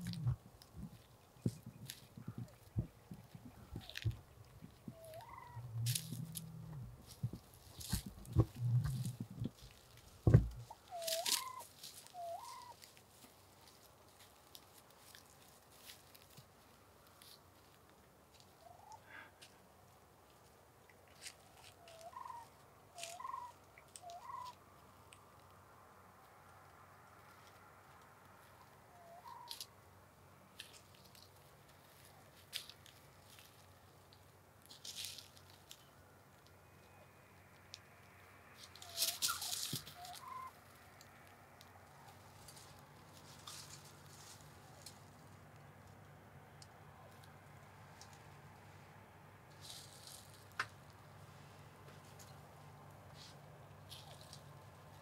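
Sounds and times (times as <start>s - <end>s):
wild turkeys calling: 0.0s - 13.2s, 18.6s - 19.4s, 21.1s - 25.2s, 28.4s - 29.7s, 34.9s - 44.9s
low thumps: 5.6s - 9.6s, 10.2s - 10.7s.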